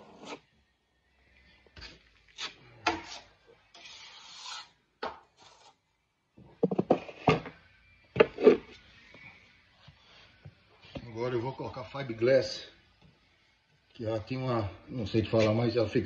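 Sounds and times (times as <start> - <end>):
taping knife scraping: 0.0 - 0.5, 2.4 - 4.8.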